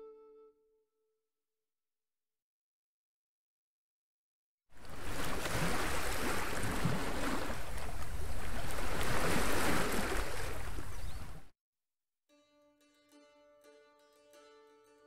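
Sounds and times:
faint plucked-string music: 0.0s - 0.8s, 12.3s - 15.0s
wind: 4.7s - 11.5s.

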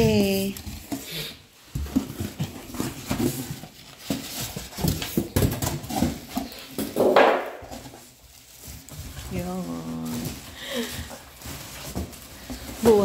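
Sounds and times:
packaging rustling: 0.2s - 13.0s
cardboard knocks and scrapes: 1.6s - 10.4s.

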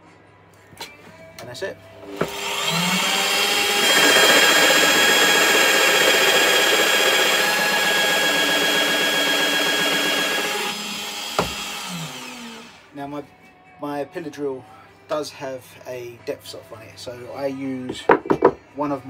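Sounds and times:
pillar drill boring into wood: 2.0s - 12.9s.

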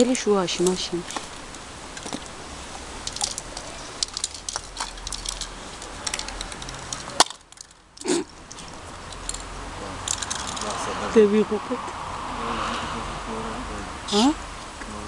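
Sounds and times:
spray can rattles: 3.0s - 10.8s.

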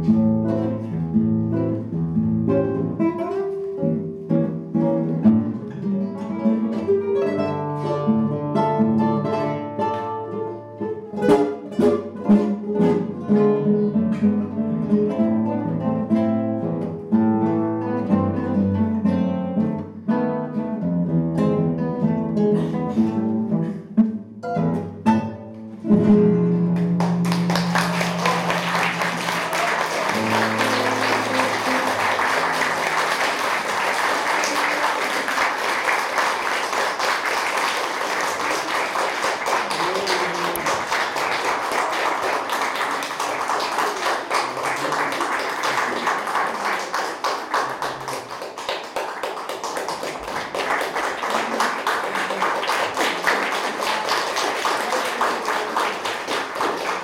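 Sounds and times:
classical guitar duet: 0.0s - 57.0s
audience applause: 26.8s - 57.0s.

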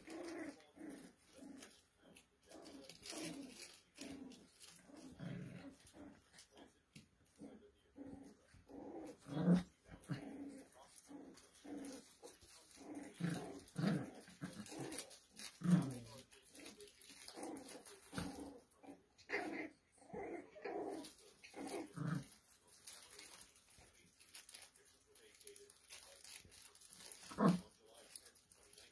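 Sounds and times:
puppies growling: 0.0s - 28.9s.

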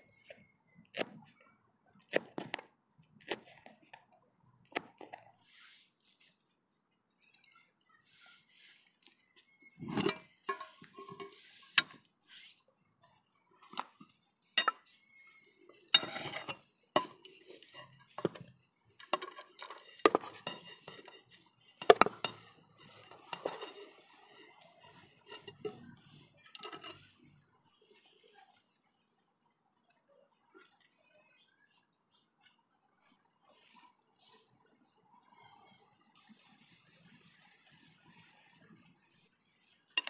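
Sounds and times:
wooden spatula scraping pot: 8.2s - 27.3s
metal pot and lid clattering: 9.8s - 12.0s, 15.9s - 18.4s, 19.0s - 27.0s.

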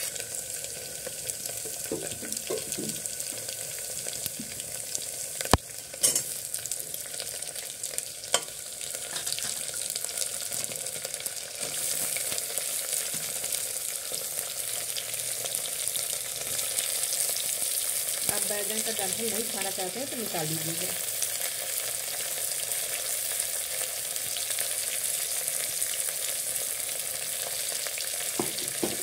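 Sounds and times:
oil sizzling in a pot: 0.0s - 29.0s
sharp knocks against pot: 28.4s - 29.0s.

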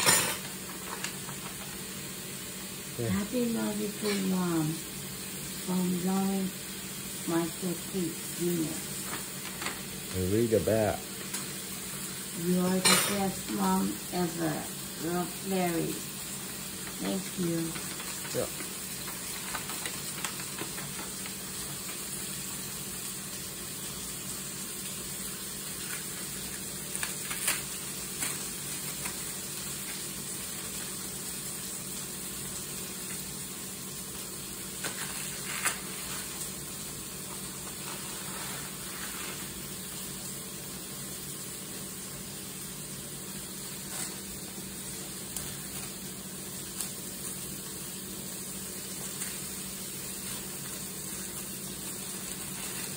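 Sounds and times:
steady hiss: 0.0s - 52.9s
tape peeling and paper ripping: 17.8s - 21.4s, 25.8s - 29.3s, 34.8s - 36.5s, 37.6s - 39.6s, 52.2s - 52.9s.

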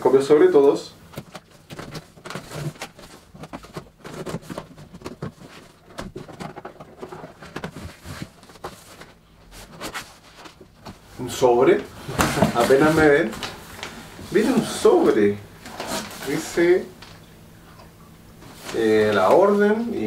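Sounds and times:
cardboard flaps scraped and rustled: 1.2s - 11.0s, 12.0s - 16.8s.

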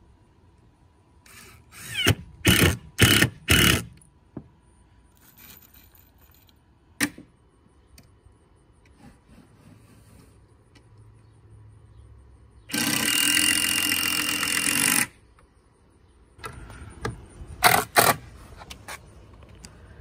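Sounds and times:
cordless drill driving screws: 1.3s - 3.9s, 12.7s - 15.2s.

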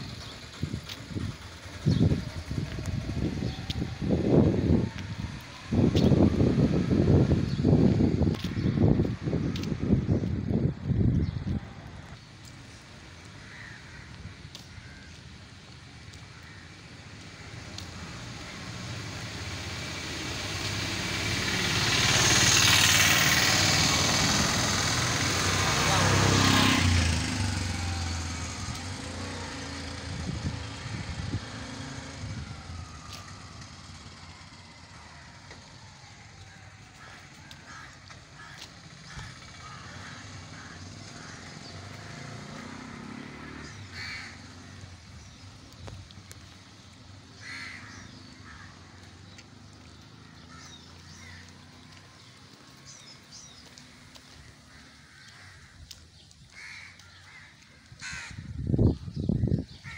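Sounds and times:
quiet street ambience: 0.0s - 59.9s
crows cawing: 13.2s - 15.2s, 16.2s - 17.0s, 36.4s - 42.3s, 43.6s - 45.0s, 47.4s - 49.4s, 50.2s - 52.0s, 52.9s - 58.6s.

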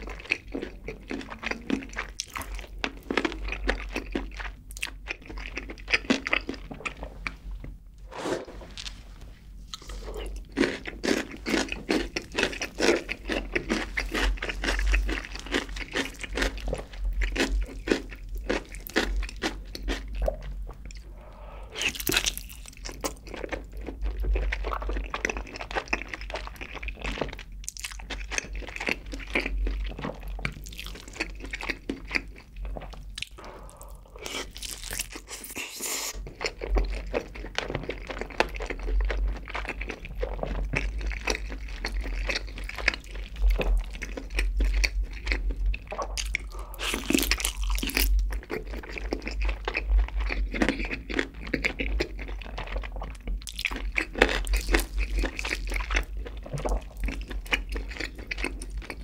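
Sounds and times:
person biting and chewing: 21.7s - 23.7s, 33.1s - 37.2s, 39.7s - 59.0s.

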